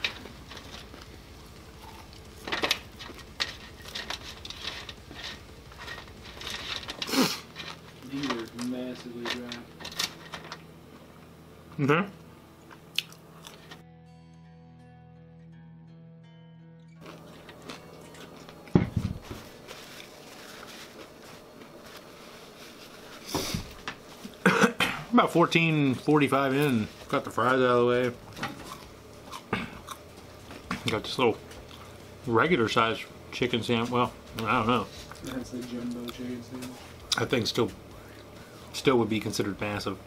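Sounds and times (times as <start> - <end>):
person chewing fries: 0.2 - 7.9, 12.6 - 13.8, 17.0 - 18.7, 28.5 - 30.7
person chewing: 1.7 - 2.2, 12.7 - 13.8, 17.0 - 18.7, 28.5 - 30.4
paper napkin rustling: 17.1 - 24.4.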